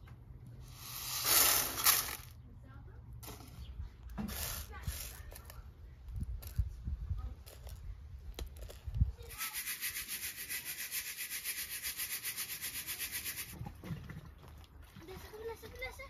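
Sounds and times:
lentils clicking on a plate: 0:07.4 - 0:13.5
fast rhythmic rasping: 0:09.3 - 0:13.5.

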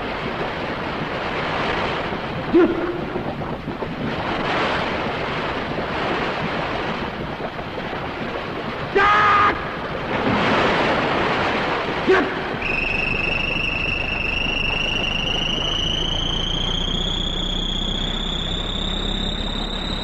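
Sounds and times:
rush of noise: 0:00.0 - 0:20.0
rising electronic whistle: 0:12.6 - 0:20.0.

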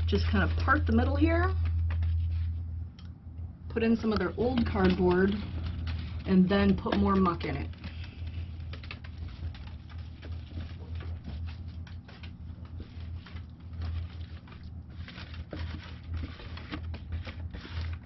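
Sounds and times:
steady low hum: 0:00.0 - 0:18.0
cardboard rustling: 0:04.4 - 0:18.0.

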